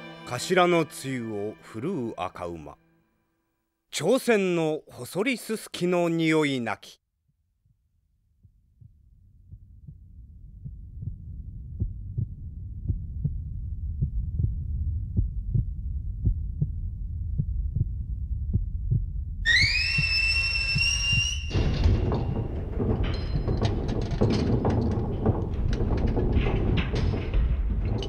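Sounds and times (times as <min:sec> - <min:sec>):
machinery rumble with low thumps: 0:08.8 - 0:19.4
high steam whistle: 0:19.5 - 0:21.5.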